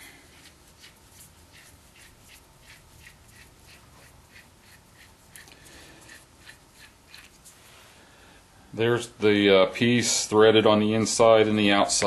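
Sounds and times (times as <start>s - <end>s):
metal nut scraping on thread: 0.8s - 7.5s.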